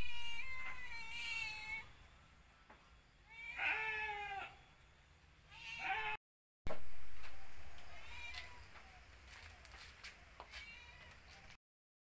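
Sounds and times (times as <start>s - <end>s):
cat meowing: 3.3s - 4.5s, 5.5s - 6.2s, 7.9s - 8.7s.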